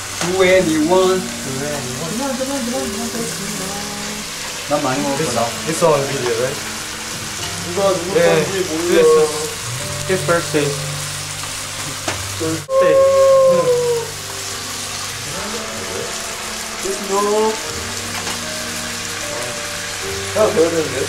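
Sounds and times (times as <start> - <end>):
kitchen sizzling hiss: 0.0 - 21.0
men shouting and whooping: 7.9 - 9.7, 12.5 - 14.3.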